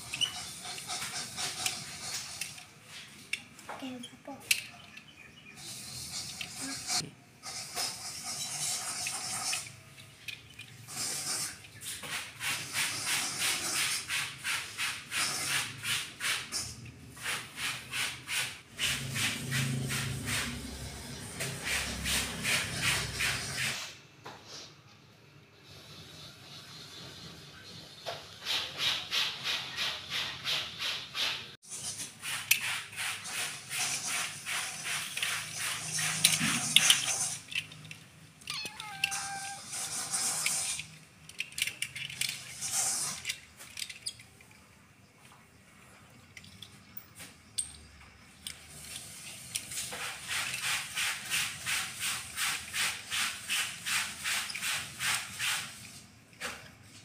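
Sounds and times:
plastic toys being handled: 0.0s - 18.4s, 31.7s - 57.0s
toys scraping across tile floor: 0.0s - 24.7s, 28.6s - 44.4s, 48.4s - 57.0s.

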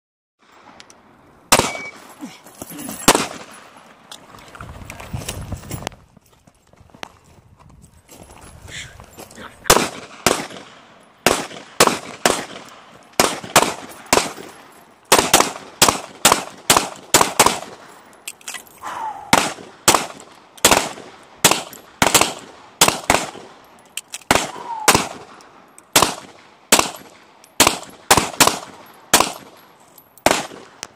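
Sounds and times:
pistol shots with echo: 1.5s - 2.0s, 3.1s - 3.6s, 9.7s - 14.5s, 15.1s - 17.8s, 19.2s - 23.6s, 24.3s - 29.6s, 30.2s - 30.8s.

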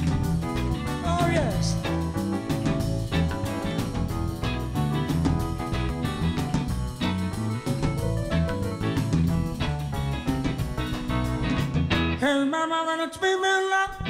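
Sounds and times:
live band playing: 0.0s - 12.2s
person singing: 1.0s - 2.0s, 12.2s - 14.0s.

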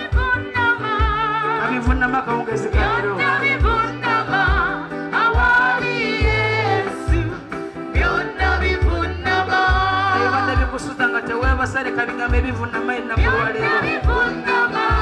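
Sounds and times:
woman singing with vibrato: 0.0s - 1.7s, 2.8s - 10.4s, 13.2s - 15.0s
bass line: 0.0s - 15.0s.

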